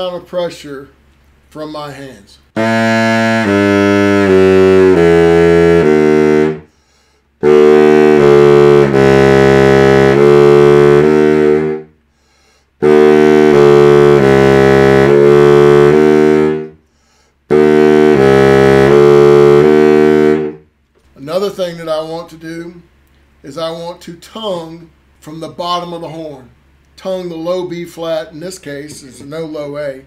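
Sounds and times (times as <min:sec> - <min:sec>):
baritone saxophone playing: 0:02.6 - 0:12.0, 0:12.8 - 0:16.9, 0:17.5 - 0:20.7.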